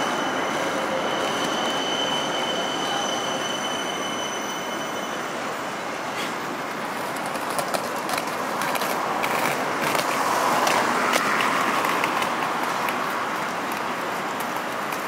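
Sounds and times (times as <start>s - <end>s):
city traffic noise: 0.0s - 15.0s
tram humming: 0.0s - 15.0s
wheeled suitcase rattling on paving: 6.9s - 15.0s.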